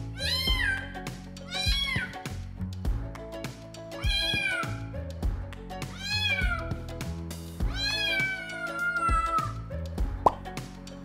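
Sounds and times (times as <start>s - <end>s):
background music with a beat: 0.0s - 11.0s
cat meowing: 0.2s - 2.2s, 4.0s - 4.8s, 5.9s - 6.8s, 7.7s - 9.6s.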